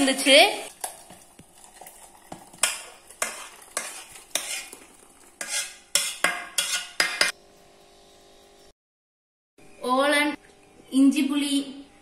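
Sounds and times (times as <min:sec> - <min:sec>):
spoon scraping steel pot: 0:02.6 - 0:07.3.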